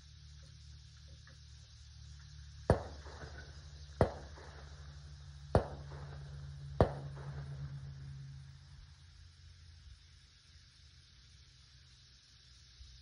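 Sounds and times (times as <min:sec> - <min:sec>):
low steady hum: 0:00.0 - 0:13.0
echoing gunshots: 0:02.7 - 0:08.1.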